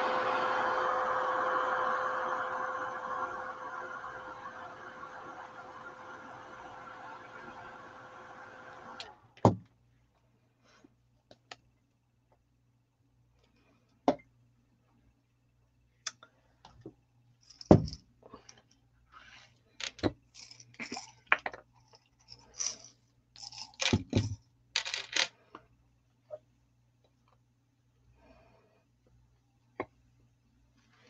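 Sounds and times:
beads rattling in a jar: 17.4s - 18.0s, 19.8s - 25.3s.

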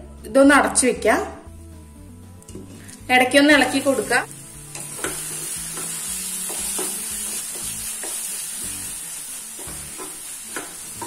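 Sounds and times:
sauce sizzling in a frying pan: 3.6s - 11.0s.

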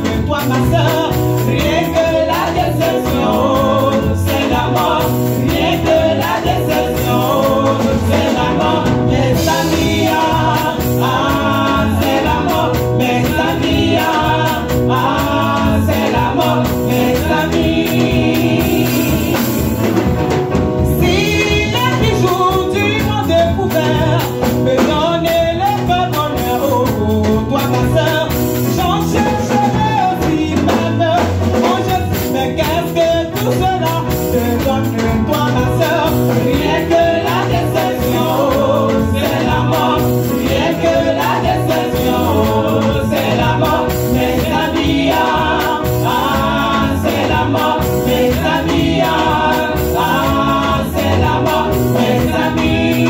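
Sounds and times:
gospel choir singing: 0.0s - 53.0s
percussion beat: 0.0s - 53.0s.

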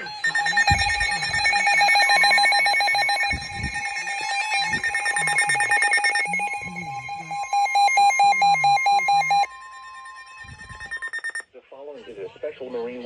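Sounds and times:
pulsed alarm beeps: 0.0s - 11.4s
steady alert tone: 0.0s - 11.4s.

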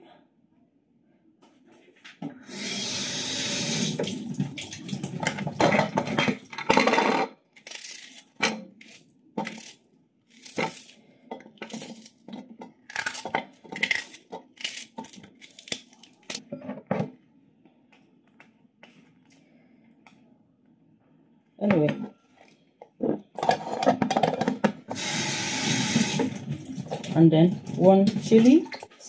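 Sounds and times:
kitchen tap running: 2.4s - 6.5s, 24.9s - 28.9s.

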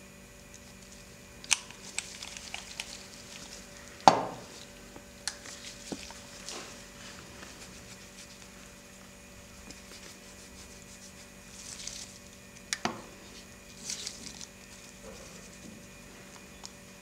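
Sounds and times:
faint steady hum: 0.0s - 17.0s
lipstick rubbing on paper: 5.5s - 8.8s, 9.6s - 12.2s.

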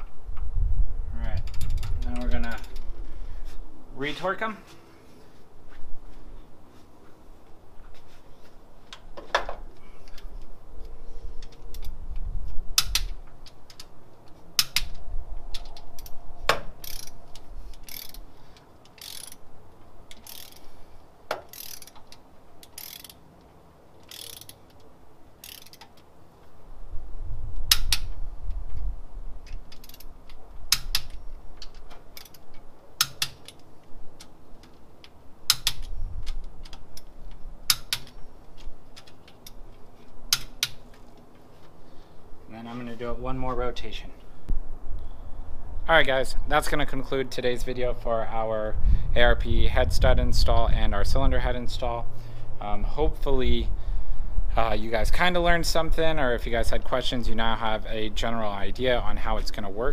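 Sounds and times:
torque wrench ratcheting clicks: 16.8s - 18.2s, 18.8s - 19.4s, 20.1s - 20.7s, 21.5s - 23.2s, 24.0s - 24.8s, 25.4s - 26.0s, 29.6s - 30.1s.

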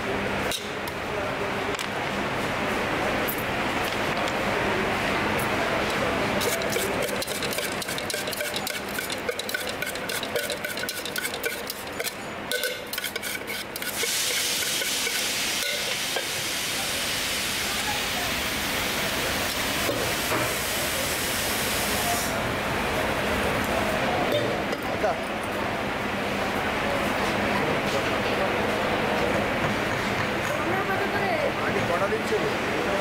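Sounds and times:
fruit clicking in steel tin: 6.4s - 14.1s
hissing rustle of stirring: 6.4s - 18.1s.

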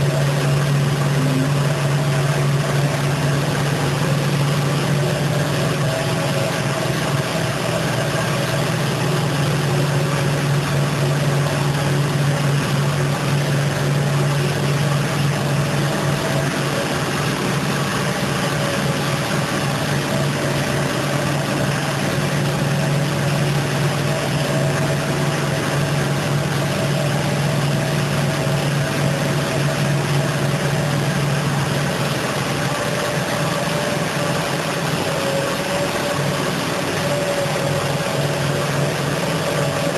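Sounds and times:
factory machinery humming: 0.0s - 39.9s.

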